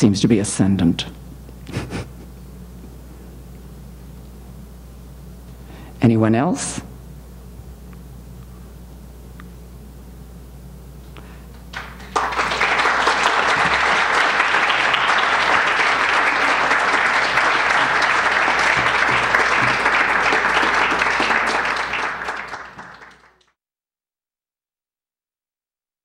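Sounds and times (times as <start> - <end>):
audience applauding: 11.7 - 23.5.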